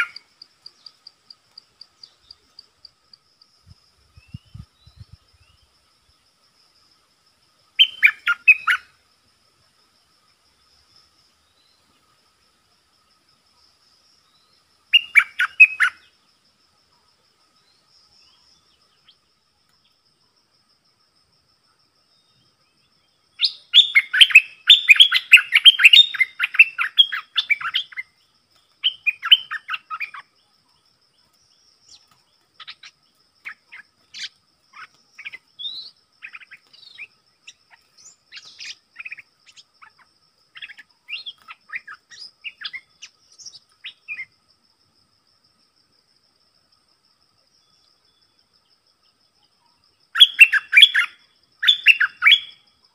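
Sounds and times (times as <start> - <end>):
bulbul calls: 0.0 - 1.1, 7.8 - 8.9, 14.9 - 16.1, 23.4 - 28.2, 28.8 - 30.4, 31.8 - 44.3, 49.6 - 52.6.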